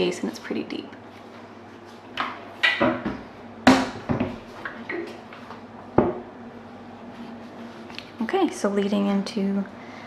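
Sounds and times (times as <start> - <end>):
cabinet door knocks and clunks: 2.8 - 4.4.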